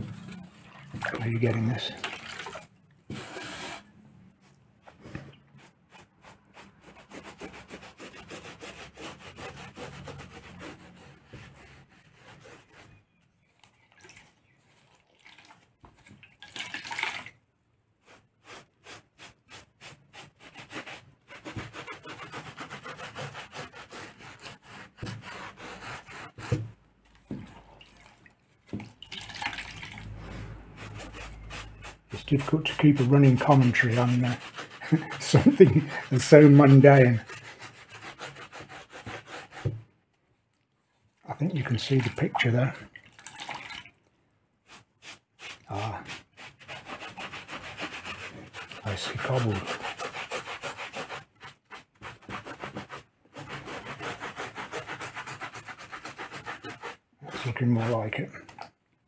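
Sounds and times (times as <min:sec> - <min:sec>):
wet sponge scrubbing cobblestones: 0:00.0 - 0:03.9, 0:04.5 - 0:16.2, 0:18.0 - 0:39.8, 0:41.3 - 0:42.9, 0:44.6 - 0:58.3.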